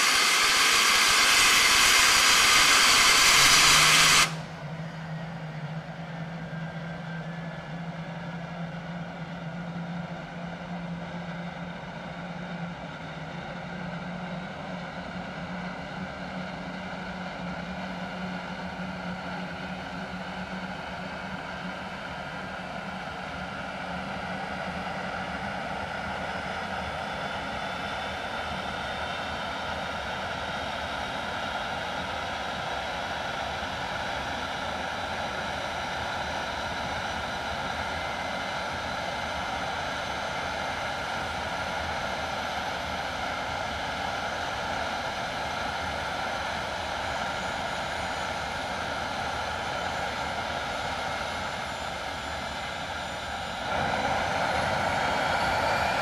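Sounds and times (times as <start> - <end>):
high whining tones: 0.0 - 4.6
jet engine rushing: 0.0 - 4.6, 49.2 - 56.0.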